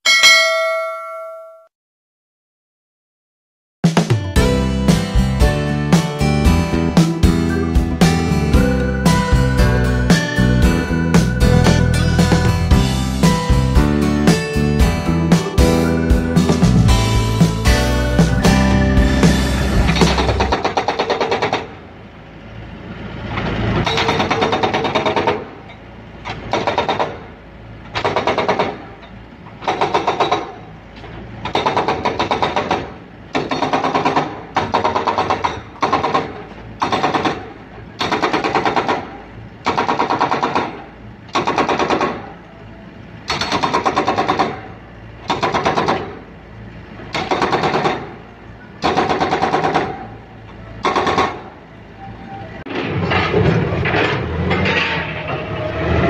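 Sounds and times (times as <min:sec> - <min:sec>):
hydraulic breaker hammering: 0:18.8 - 0:21.8, 0:23.8 - 0:27.3, 0:27.9 - 0:30.6, 0:31.4 - 0:42.4, 0:43.2 - 0:46.3, 0:47.1 - 0:50.2, 0:50.8 - 0:51.6.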